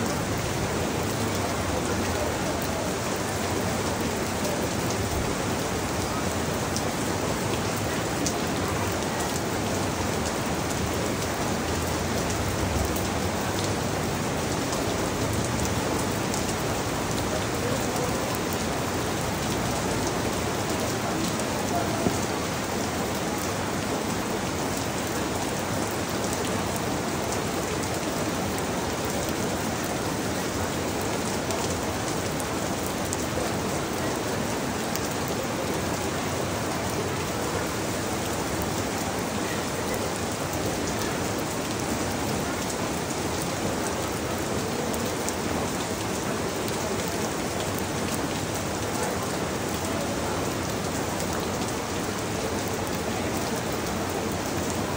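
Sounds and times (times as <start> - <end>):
rain falling on leaves: 0.0 - 54.9.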